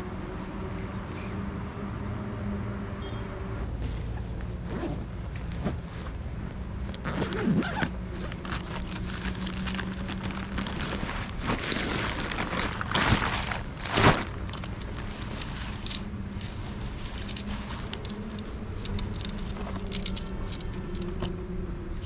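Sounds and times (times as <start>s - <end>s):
fabric rustling: 3.8s - 21.2s
zipper on nylon bag: 4.6s - 5.0s, 7.0s - 15.3s.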